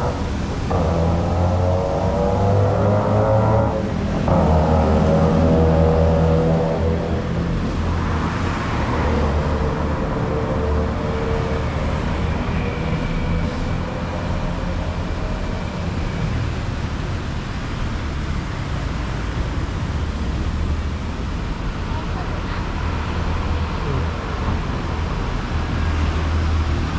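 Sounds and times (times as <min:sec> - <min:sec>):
road traffic rumble: 0:00.0 - 0:26.9.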